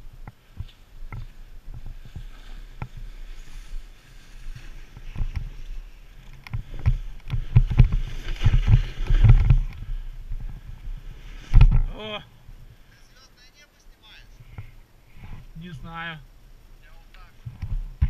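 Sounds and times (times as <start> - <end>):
snowboard scraping over snow: 0.6 - 9.7.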